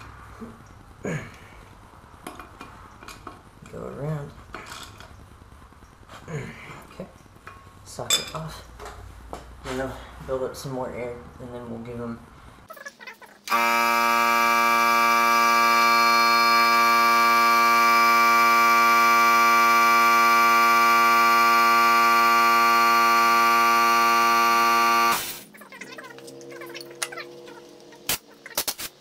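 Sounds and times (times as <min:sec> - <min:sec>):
air compressor humming: 0:13.5 - 0:25.5.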